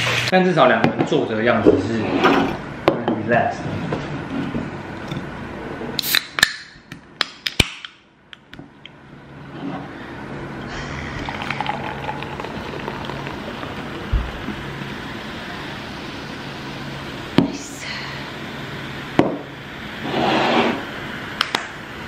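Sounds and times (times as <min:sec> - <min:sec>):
soda can opening hiss: 0:06.0 - 0:06.5
drink pouring and fizzing: 0:10.7 - 0:16.4
low thump: 0:14.1 - 0:14.5.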